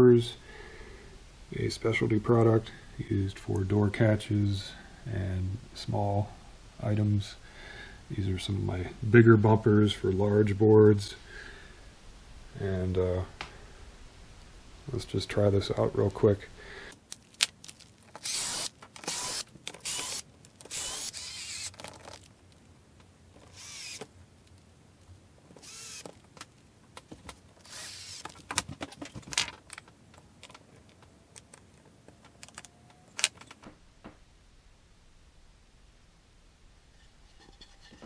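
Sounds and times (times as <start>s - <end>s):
cordless drill driving screws: 18.2s - 21.9s, 23.5s - 24.1s, 25.6s - 26.2s, 27.6s - 28.4s
clicks and knocks of handling: 28.2s - 34.2s.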